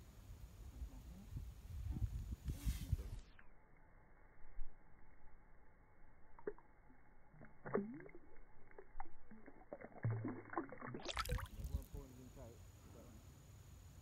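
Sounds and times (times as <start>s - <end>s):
water sloshing and splashing: 7.3s - 11.9s.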